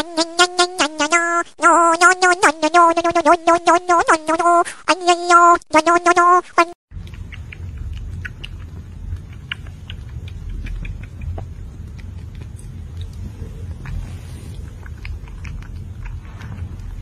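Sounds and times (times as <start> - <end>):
kitten suckling wet clicks: 6.9 - 17.0
steady low rumble: 6.9 - 17.0.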